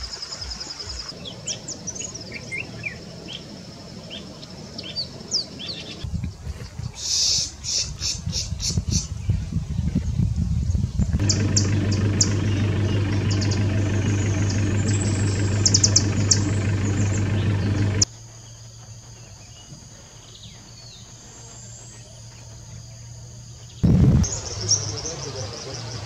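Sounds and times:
steady low hum: 10.9s - 18.1s.

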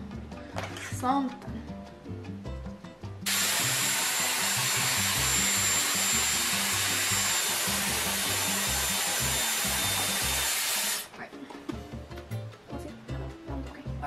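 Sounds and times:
hair styler blowing air: 3.3s - 11.1s.

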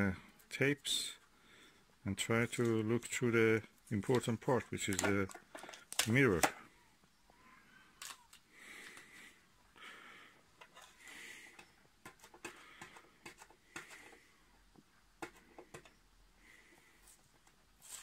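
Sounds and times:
tape peeling rustle: 17.8s - 18.0s.

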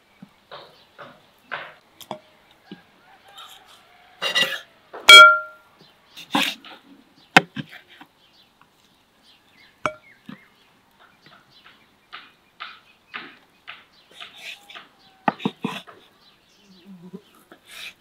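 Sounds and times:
ringing metallic clink: 5.1s - 5.6s.

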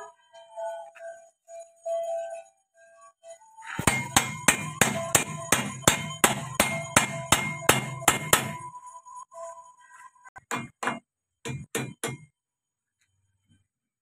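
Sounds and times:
hammer clanging on metal: 3.8s - 8.6s, 10.4s - 12.3s.

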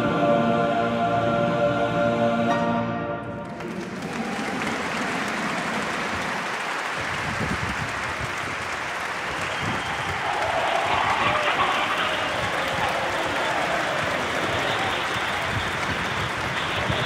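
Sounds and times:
choir and orchestra chord: 0.0s - 6.2s
audience applauding: 3.4s - 17.0s.

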